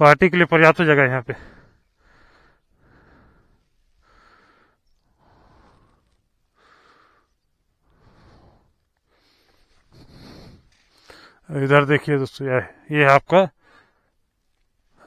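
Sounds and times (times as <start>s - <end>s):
faint breathing: 1.2s - 11.5s, 13.5s - 15.0s.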